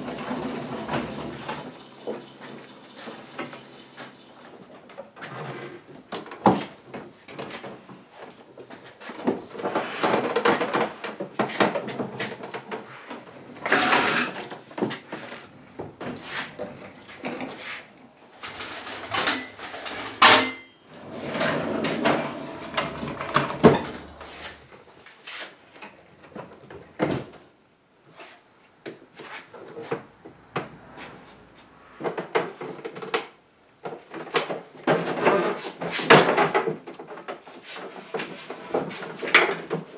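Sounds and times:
wood scraping: 0.0s - 20.2s, 20.9s - 26.6s, 29.1s - 33.0s.

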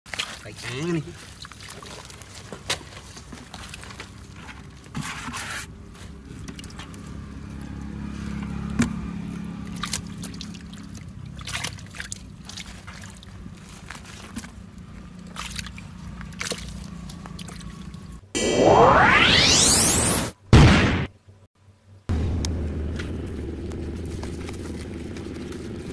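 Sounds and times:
hands splashing in muddy water: 0.1s - 4.2s, 9.6s - 18.1s.

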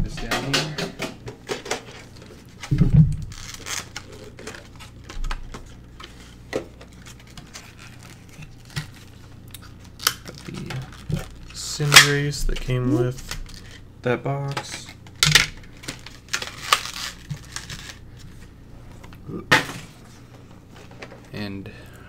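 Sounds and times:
plastic wrapping crinkling: 1.6s - 13.8s, 14.7s - 19.2s.

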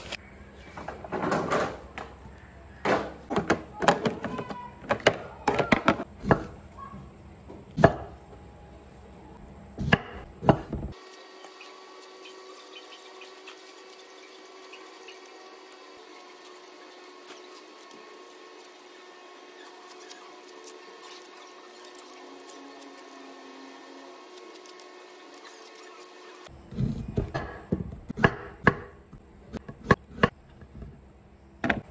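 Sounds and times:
vegetable peeler scraping: 10.9s - 27.2s
knife chopping on wooden board: 27.3s - 28.9s.

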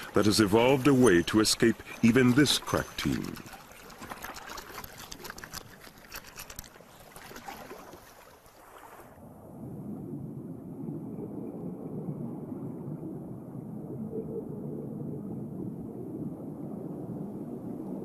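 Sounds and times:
water sloshing with bubbles: 0.0s - 9.2s.

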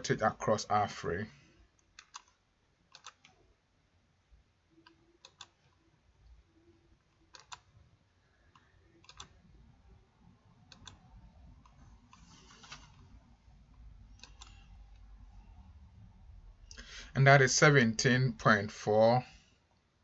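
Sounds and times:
computer mouse clicks: 1.8s - 3.4s, 4.8s - 5.8s, 7.0s - 7.8s, 8.4s - 9.4s, 10.6s - 13.1s, 14.1s - 15.1s.

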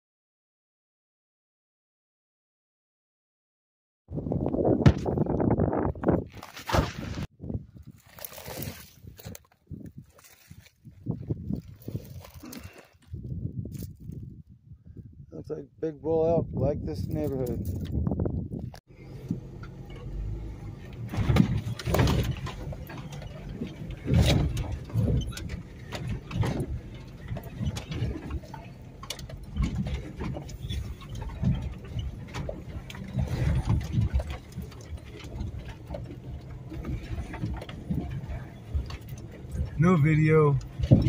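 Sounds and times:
vehicle body thumps and rattles: 4.7s - 7.3s, 20.8s - 39.9s, 40.6s - 41.0s
low engine rumble: 16.6s - 41.0s.

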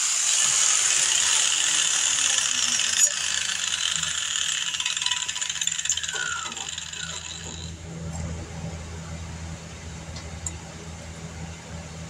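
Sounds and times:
power grinder grinding metal: 0.0s - 7.8s.

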